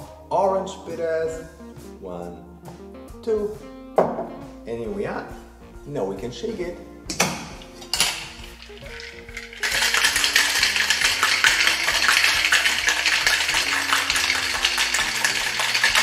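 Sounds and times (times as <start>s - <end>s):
ice rattling in cocktail shaker: 7.6s - 16.0s.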